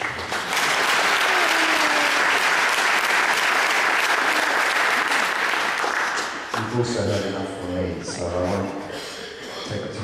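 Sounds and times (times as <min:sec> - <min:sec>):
crowd applauding: 0:00.0 - 0:06.9.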